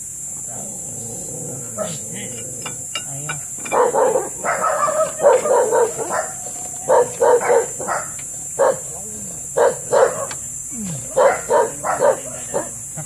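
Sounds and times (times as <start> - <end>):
dog barking: 3.6 - 10.4, 11.1 - 12.8.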